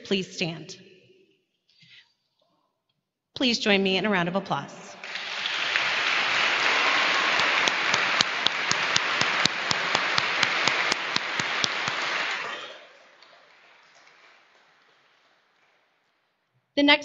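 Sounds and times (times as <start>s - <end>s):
single person clapping sharply: 5.0s - 14.7s
audience applauding: 5.0s - 15.8s.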